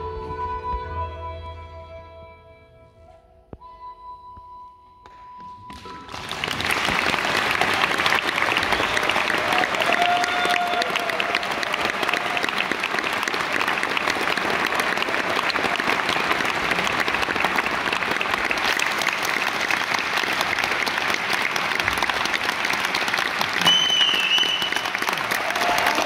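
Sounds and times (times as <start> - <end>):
audience applauding: 5.7 - 26.0.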